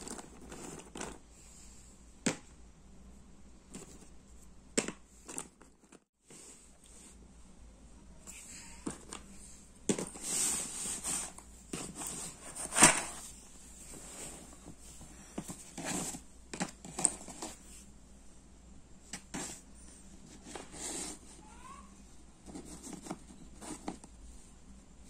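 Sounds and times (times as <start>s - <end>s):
puzzle pieces rustling clatter: 0.0s - 1.2s.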